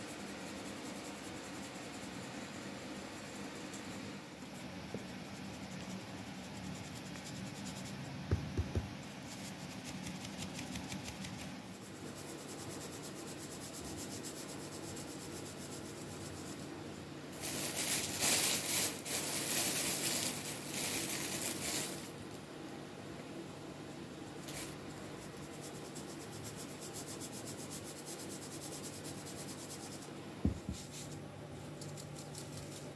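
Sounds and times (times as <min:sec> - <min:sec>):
plastic bag crinkling: 0:17.4 - 0:22.1.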